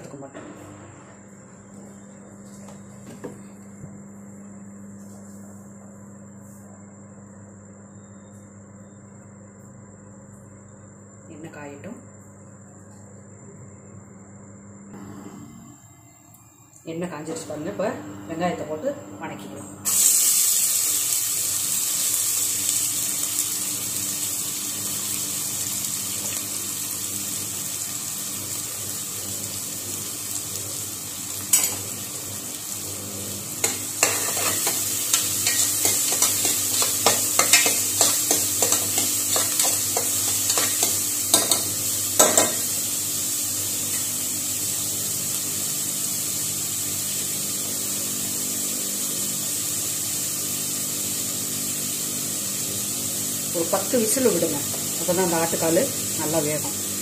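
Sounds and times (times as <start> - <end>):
onions sizzling in oil: 19.8 - 57.0.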